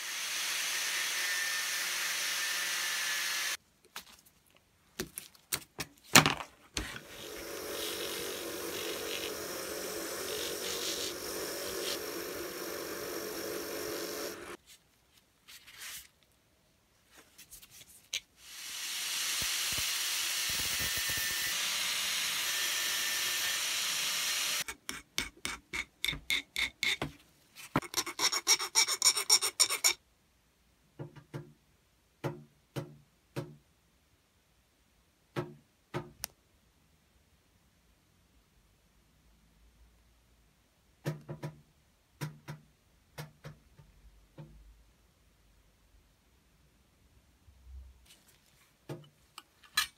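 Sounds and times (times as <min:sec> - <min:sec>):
angle grinder cutting metal: 0:00.0 - 0:03.6, 0:07.0 - 0:14.6, 0:18.5 - 0:24.7
steady tool noise: 0:00.0 - 0:03.6, 0:06.8 - 0:14.6, 0:18.4 - 0:27.0.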